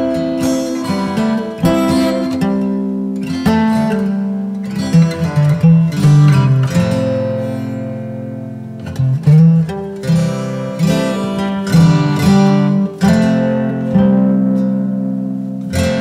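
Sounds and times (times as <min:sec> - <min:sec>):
plucked string music: 0:00.0 - 0:16.0.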